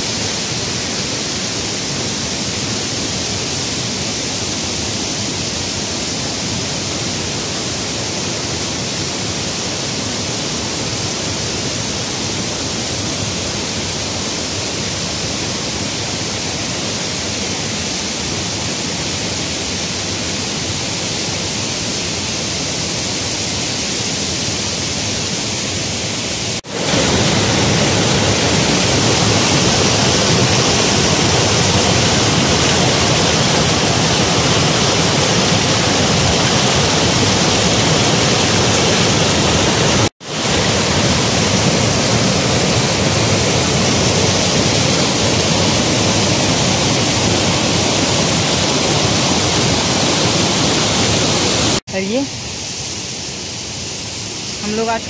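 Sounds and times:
floodwater rushing over rocks: 0.0 - 52.2.

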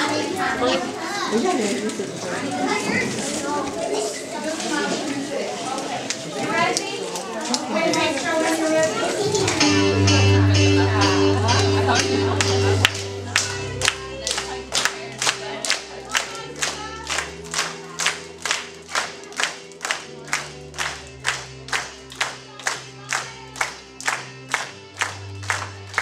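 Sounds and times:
children clapping in time: 5.8 - 10.2, 11.4 - 26.0.

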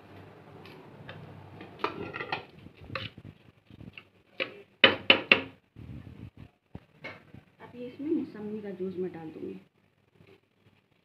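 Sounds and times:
metal spoon scraping a pot: 1.8 - 3.2.

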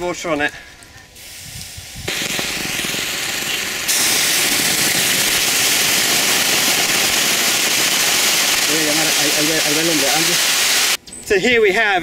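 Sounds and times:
water hissing on hot rock: 1.2 - 11.0.

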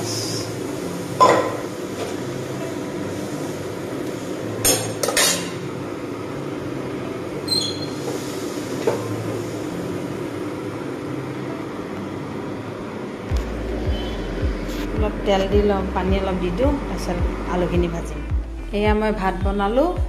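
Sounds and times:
steady low hum: 8.4 - 20.0.

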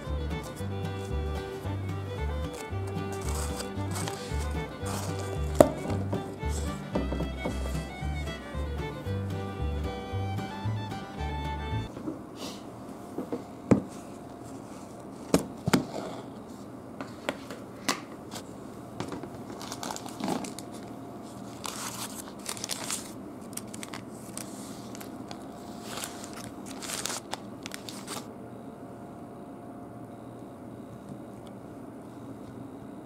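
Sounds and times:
paper crinkling and rustling: 2.5 - 6.8, 19.4 - 28.3
sharp knocks: 5.6 - 8.0.

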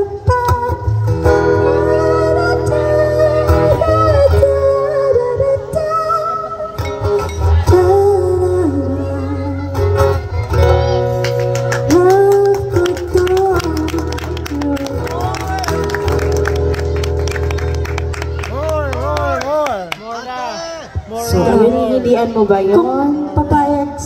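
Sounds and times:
woman singing: 0.0 - 6.9, 7.6 - 11.1, 11.8 - 15.3
acoustic guitar: 0.0 - 19.4.

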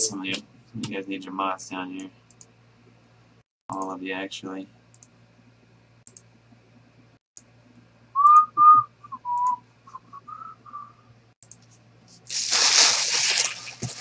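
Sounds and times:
man whistling a tune: 8.2 - 11.0
rustling: 12.2 - 14.0.

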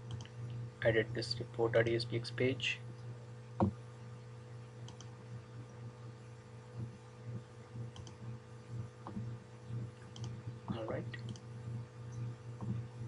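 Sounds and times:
low electrical hum: 0.0 - 13.0
computer mouse clicking: 4.9 - 5.1, 7.9 - 8.2, 10.1 - 10.4.

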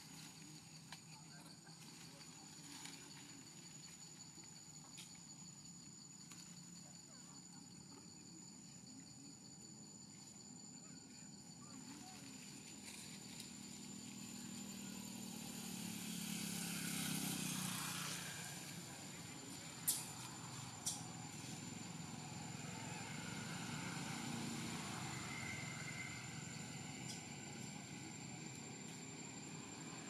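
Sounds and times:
faint high whine: 0.0 - 30.0
distant motor vehicle rumble: 11.8 - 30.0.

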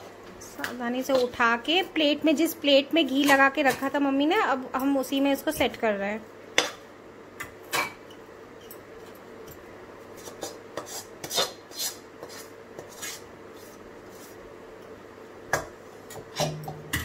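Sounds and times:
metal spoon scraping steel pan: 10.2 - 13.2.

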